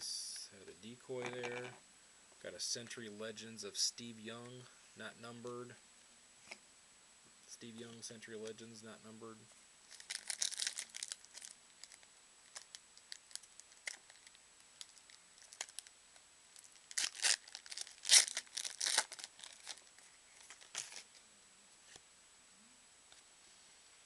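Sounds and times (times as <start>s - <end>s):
foil wrapper tearing and crinkling: 9.9s - 15.9s, 16.6s - 21.1s.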